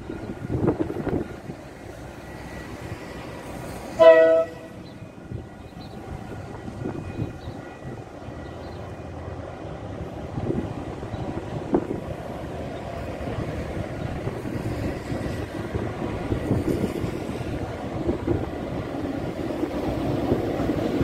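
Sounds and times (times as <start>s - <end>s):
train rumble: 0.0s - 21.0s
locomotive horn blast: 3.9s - 4.9s.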